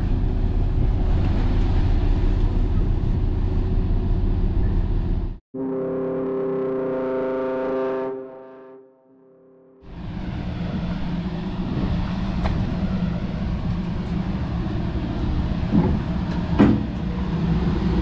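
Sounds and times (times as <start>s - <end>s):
moving vehicle rumble: 0.0s - 5.4s, 9.8s - 18.0s.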